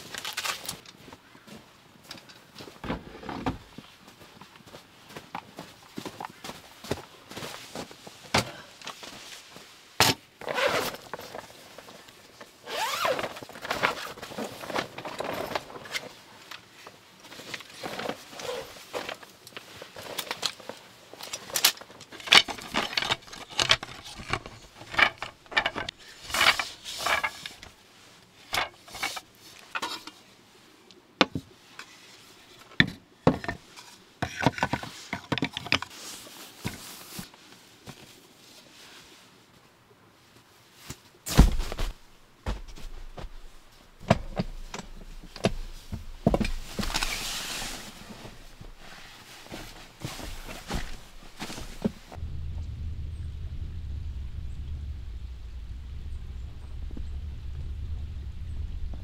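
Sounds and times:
camping gear clicks and knocks: 0.0 - 1.2, 2.0 - 3.8, 4.4 - 9.3, 10.0 - 27.8, 28.4 - 30.2, 32.6 - 38.2, 40.8 - 52.2.

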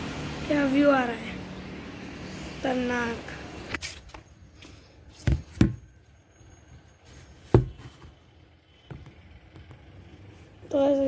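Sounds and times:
dull thumps: 7.5 - 8.1.

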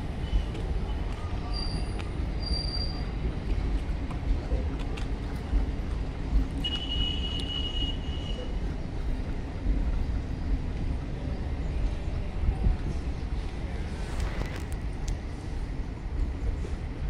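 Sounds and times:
train wheels rumbling on rails: 0.0 - 17.0
high-pitched wheel squeal: 1.5 - 3.1.

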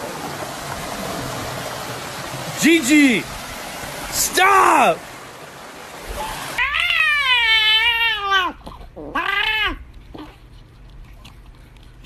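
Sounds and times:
water splashing: 0.0 - 8.7
cat meowing: 6.6 - 9.8.

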